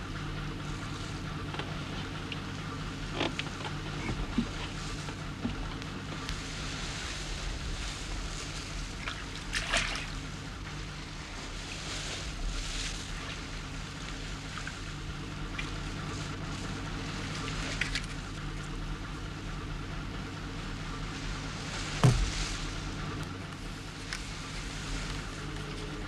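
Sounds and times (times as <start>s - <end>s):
steady low hum: 0.0s - 26.0s
water lapping around boats: 0.0s - 26.0s
water splashes: 6.3s - 18.6s, 21.1s - 23.2s.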